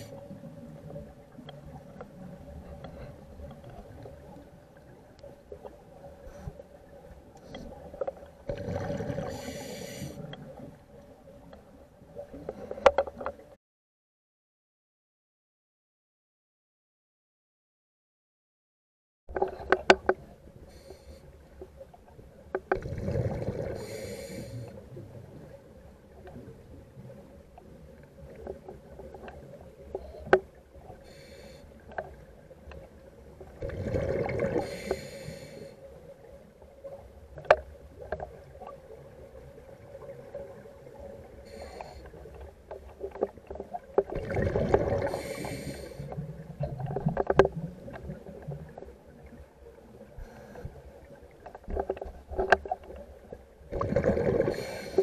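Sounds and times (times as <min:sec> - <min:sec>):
faint steady hum: 0:19.8 - 0:55.0
water sloshing: 0:37.2 - 0:50.0.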